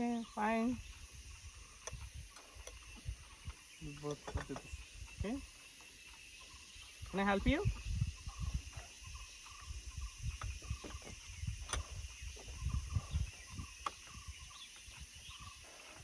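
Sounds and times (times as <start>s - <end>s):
bird chirps: 0.0s - 16.0s
insects hissing: 0.0s - 16.0s
wind on microphone: 0.4s - 5.5s, 6.4s - 15.7s.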